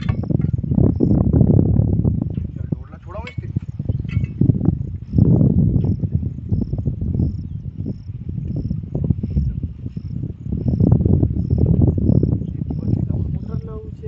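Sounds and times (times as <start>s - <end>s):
cricket chirping: 0.0s - 14.0s
gusting low rumble: 0.0s - 14.0s.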